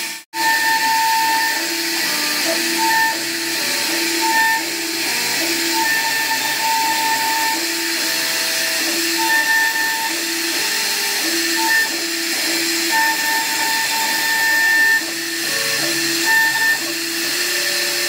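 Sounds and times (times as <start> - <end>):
cnc router whine: 0.0 - 18.0.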